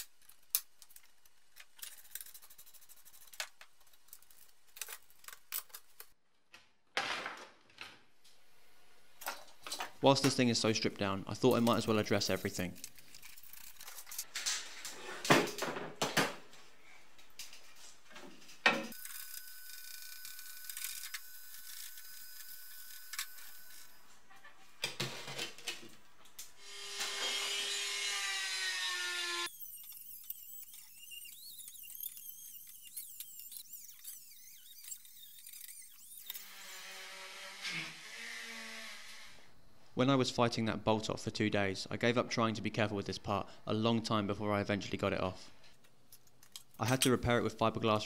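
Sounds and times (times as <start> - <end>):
hand-held grinder: 18.9 - 24.0, 26.6 - 39.4
high-pitched power tool whine: 18.9 - 24.1, 26.6 - 39.4.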